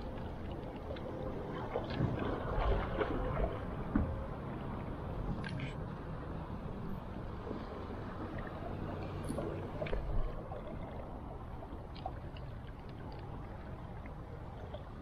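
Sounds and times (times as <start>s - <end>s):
flowing river water: 0.0s - 15.0s.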